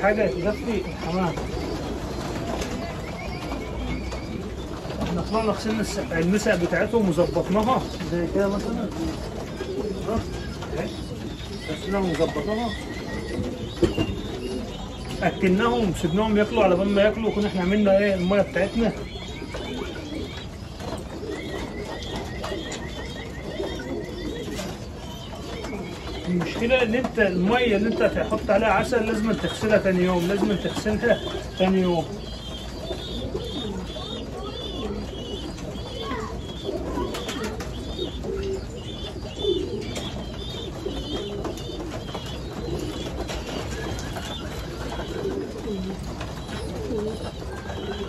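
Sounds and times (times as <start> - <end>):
pigeons cooing: 0.0 - 48.0.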